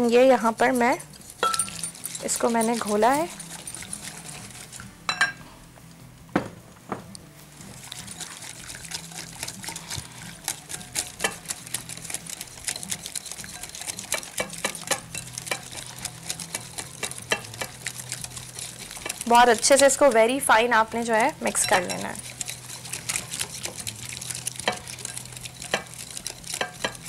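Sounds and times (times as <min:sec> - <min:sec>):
wire whisk ticking against glass bowl: 0:00.0 - 0:04.8, 0:07.7 - 0:27.0
sharp clinks of whisk on glass: 0:01.4 - 0:04.0.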